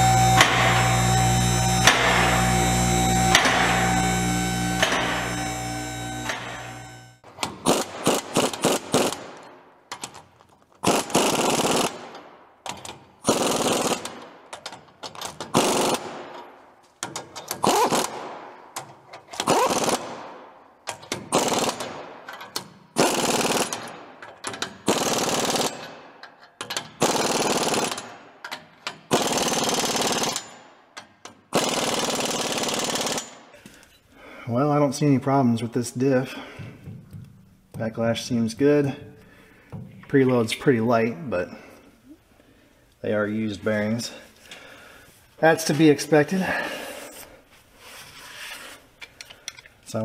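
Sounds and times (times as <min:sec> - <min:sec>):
pneumatic impact wrench hammering: 0:00.0 - 0:10.1, 0:10.8 - 0:33.6.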